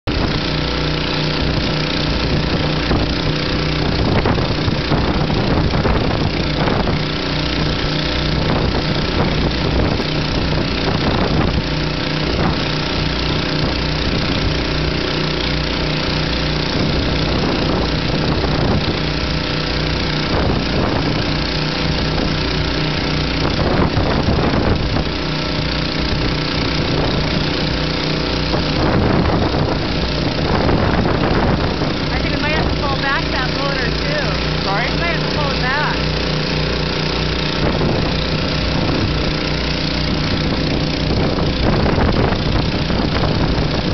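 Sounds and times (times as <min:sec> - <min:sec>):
engine-driven water pump running: 0:00.0 - 0:43.9
surf: 0:00.1 - 0:43.9
storm wind: 0:01.5 - 0:12.8, 0:26.0 - 0:36.2, 0:37.3 - 0:43.9.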